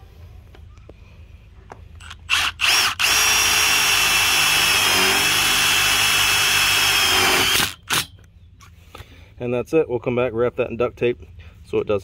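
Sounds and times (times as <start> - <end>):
cordless driver drilling screw into steel: 2.0 - 8.1.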